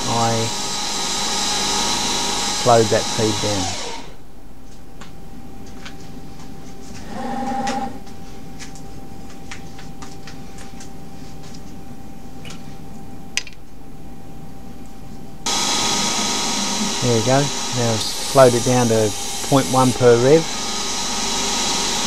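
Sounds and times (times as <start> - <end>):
axis motors whining: 0.0 - 4.2, 15.5 - 22.0
lathe drives humming: 0.0 - 4.2, 15.5 - 22.0.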